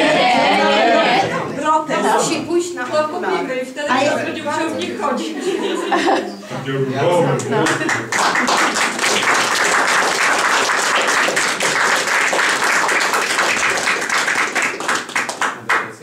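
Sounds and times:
crowd applauding: 7.6 - 16.0.

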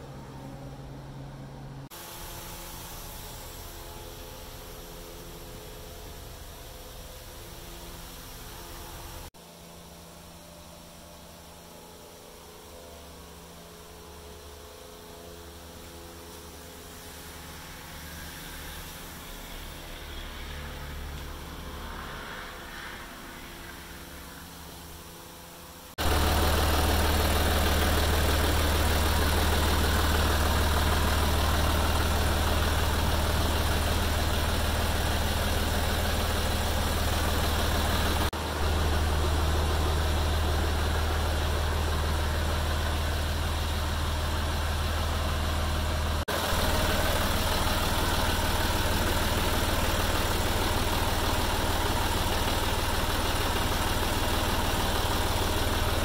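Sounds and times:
diesel tractor engine idling: 0.0 - 9.3, 22.5 - 56.0.

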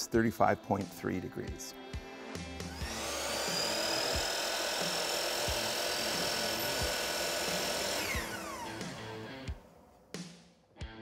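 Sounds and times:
miter saw motor whining: 2.7 - 9.3.

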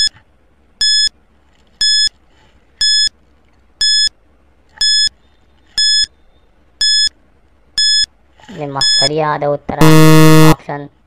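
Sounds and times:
high electronic beeps: 4.8 - 5.1, 5.8 - 6.1, 6.8 - 7.1, 7.8 - 8.1, 8.8 - 9.1, 9.8 - 10.6.

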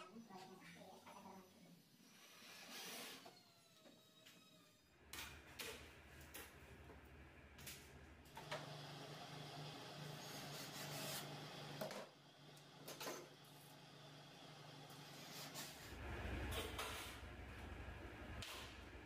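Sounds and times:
faint cordless drill running: 1.8 - 5.0.

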